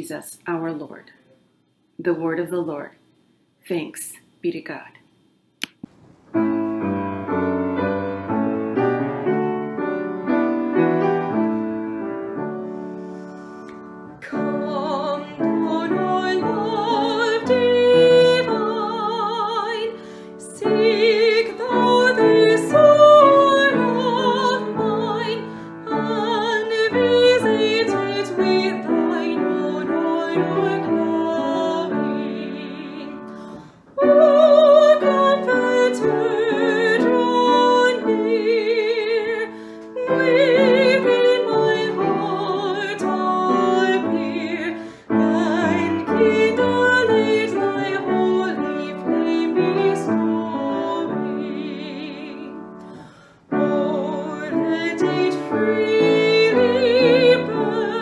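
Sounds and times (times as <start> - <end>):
piano accompaniment: 5.9 - 58.0
woman singing a hymn: 14.2 - 58.0.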